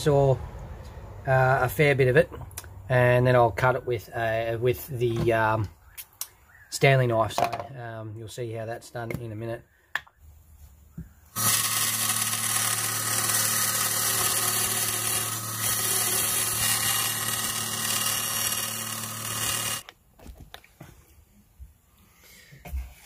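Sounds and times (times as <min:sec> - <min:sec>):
bandsaw cutting plastic: 0:11.3 - 0:19.9.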